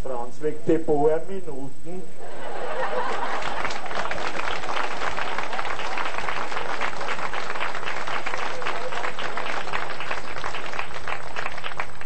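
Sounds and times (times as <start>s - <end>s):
audience applauding: 2.7s - 12.0s.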